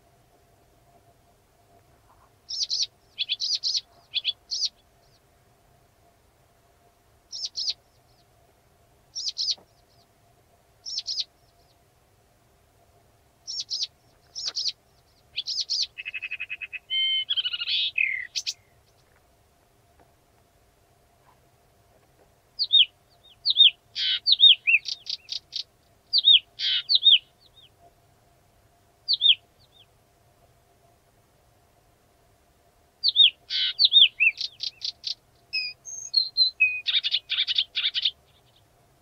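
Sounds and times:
warbler singing: 2.4 - 5.3, 7.3 - 8.3, 9.1 - 10.2, 10.8 - 11.8, 13.4 - 19.1, 22.6 - 27.9, 29.1 - 29.9, 33.0 - 38.7.

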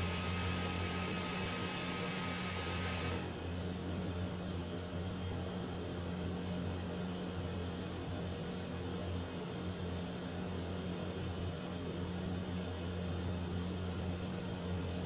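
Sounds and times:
machine hum: 0.0 - 3.8.

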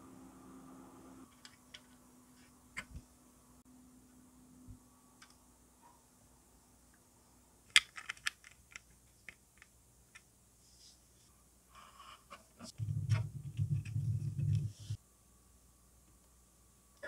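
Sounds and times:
plastic parts clicking and knocking: 7.7 - 10.3.

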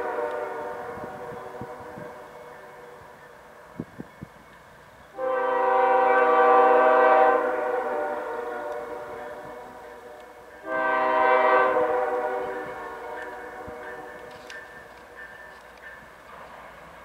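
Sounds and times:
locomotive air horn blasts: 0.0 - 2.9, 5.2 - 14.3.

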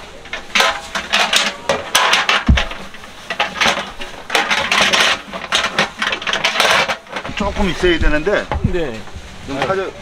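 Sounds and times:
hard objects clattering and knocking: 0.0 - 9.8
dull thump: 2.4 - 3.0.

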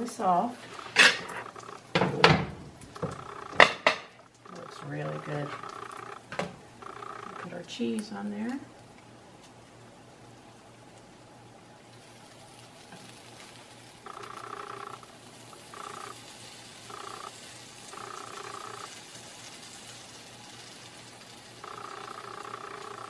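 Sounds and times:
omelet sizzling in pan: 0.0 - 23.0
two-toned hum: 2.9 - 7.7, 14.0 - 19.0, 21.6 - 23.0.

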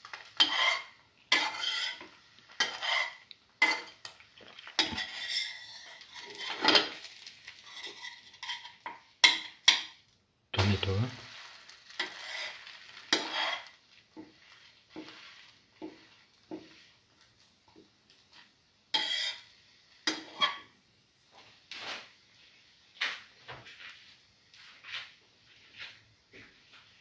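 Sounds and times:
metal skimmer scraping a pan: 0.3 - 3.9, 4.7 - 9.4, 11.3 - 16.9, 18.9 - 20.7.

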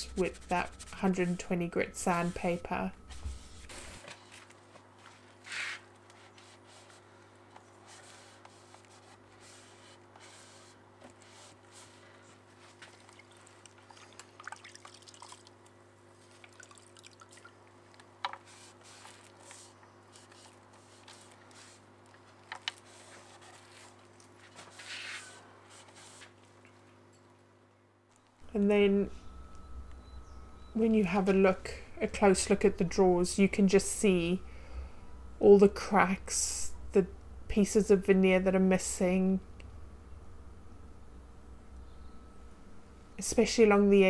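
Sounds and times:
abrasive rubbing on wood: 0.0 - 4.0
steady low hum: 0.0 - 16.8, 28.2 - 44.0.

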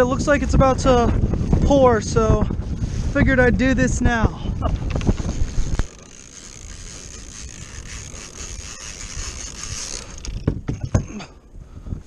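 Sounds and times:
wind and water hissing: 0.6 - 10.6
kayak gear knocking: 4.6 - 11.3.

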